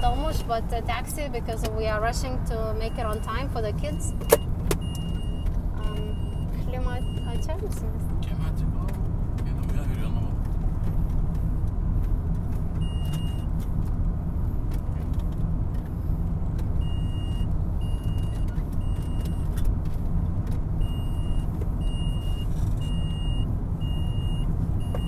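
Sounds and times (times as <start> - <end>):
high electronic warning beeps: 0.0 - 0.5
road and engine rumble in car: 0.0 - 25.0.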